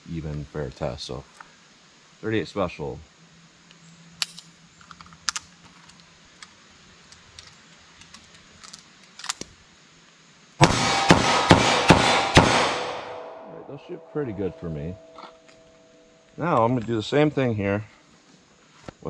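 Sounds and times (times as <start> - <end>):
gunshots: 10.6 - 14.2
steel target ringing: 10.6 - 16.3.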